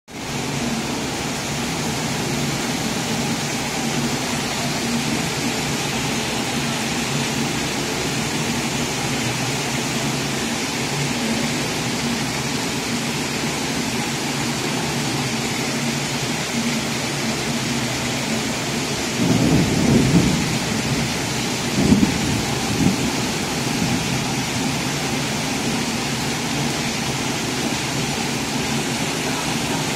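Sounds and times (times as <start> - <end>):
heavy rain pouring: 0.1 - 29.9
low rumbles of thunder: 17.9 - 25.8.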